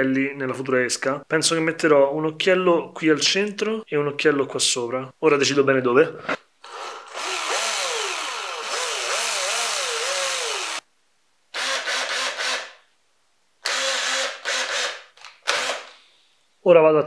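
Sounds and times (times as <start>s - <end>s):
cordless drill spinning: 6.6s - 10.8s, 11.6s - 12.8s, 13.6s - 16.0s.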